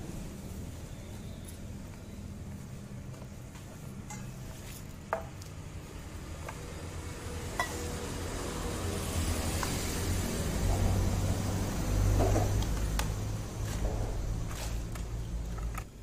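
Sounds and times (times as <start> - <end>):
street traffic hum: 0.0 - 16.0
glass and metal clinking on concrete: 4.1 - 5.4, 7.6 - 7.9.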